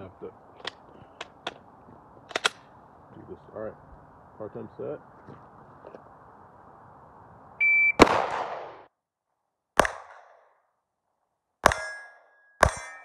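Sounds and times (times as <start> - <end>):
shot timer beep: 7.6 - 8.0
pistol shots: 8.0 - 8.9, 9.8 - 10.5, 11.6 - 13.0.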